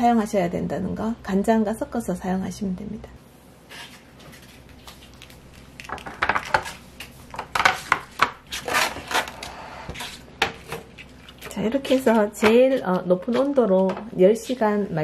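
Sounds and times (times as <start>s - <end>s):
plastic rubbing: 3.8s - 14.6s
plastic trays clacking and knocking: 5.9s - 9.4s.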